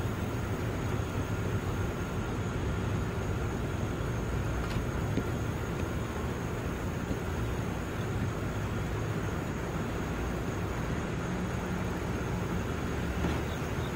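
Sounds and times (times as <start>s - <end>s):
low outdoor rumble: 0.0s - 13.9s.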